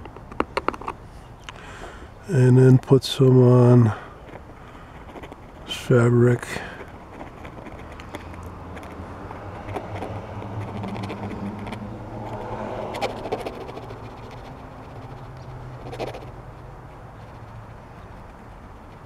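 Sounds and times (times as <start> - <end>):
steady low hum: 0.9 - 19.0
glue nozzle scraping foam: 4.6 - 16.4.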